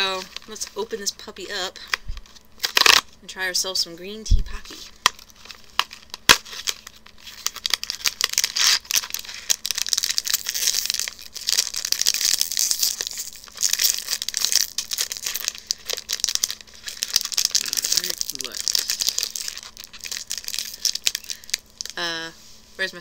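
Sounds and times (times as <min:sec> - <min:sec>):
packaging tearing and crinkling: 0:01.9 - 0:03.1, 0:04.8 - 0:22.0.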